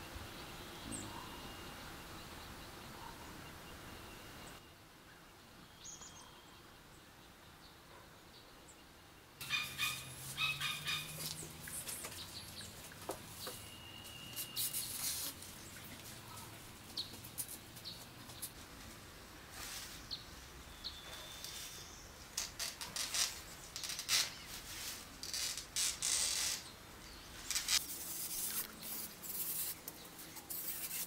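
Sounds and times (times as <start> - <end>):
birds calling: 9.4 - 18.6.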